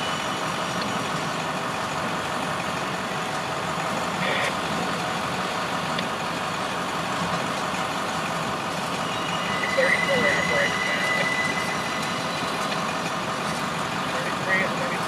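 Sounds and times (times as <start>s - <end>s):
high wheel squeal: 0.0s - 1.6s, 7.9s - 15.0s
train wheels on rail: 0.0s - 15.0s.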